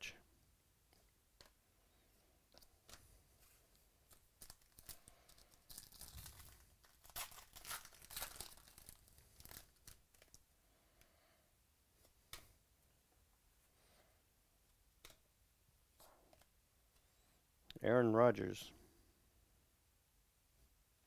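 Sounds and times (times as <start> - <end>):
plastic wrapper tearing and crinkling: 4.1 - 10.4.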